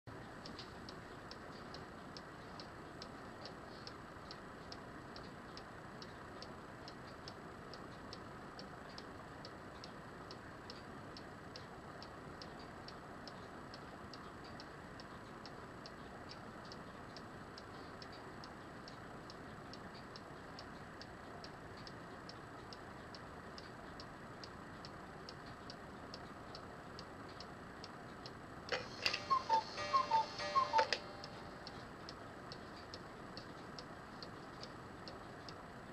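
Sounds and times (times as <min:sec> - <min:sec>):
cuckoo clock ticking: 0:00.1 - 0:35.9.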